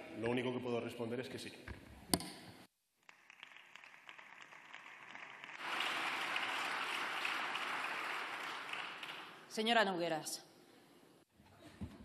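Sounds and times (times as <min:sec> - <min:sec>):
crowd applauding: 0:03.1 - 0:09.6.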